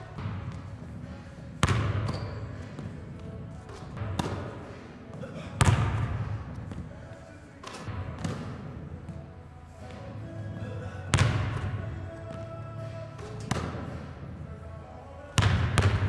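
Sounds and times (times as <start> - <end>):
background music: 0.0 - 16.0
basketball bouncing: 1.6 - 6.9, 7.6 - 9.2, 11.1 - 12.5, 13.2 - 14.2, 15.4 - 16.0.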